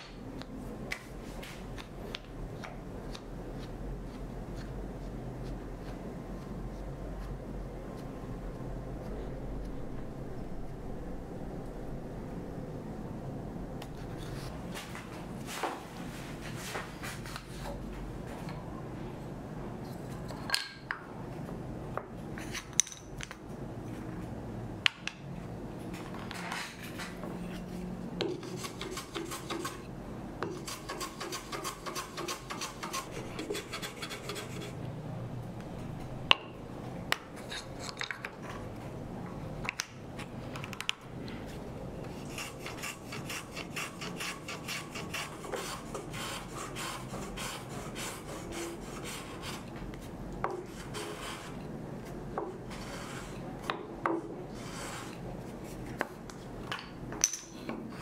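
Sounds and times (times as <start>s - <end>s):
hand plane shaving wood: 42.2s - 49.6s.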